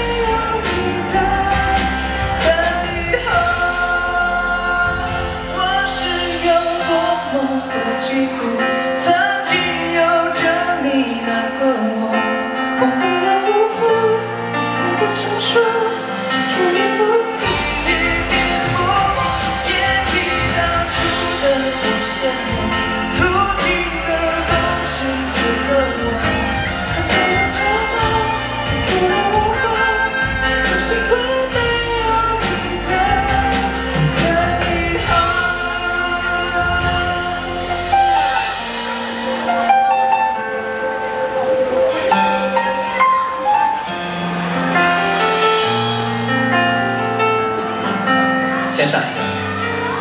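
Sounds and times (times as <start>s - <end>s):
bass and drums: 0.0s - 7.6s, 13.8s - 47.2s
man singing into a microphone: 0.0s - 43.8s
pop ballad backing music: 0.0s - 50.0s.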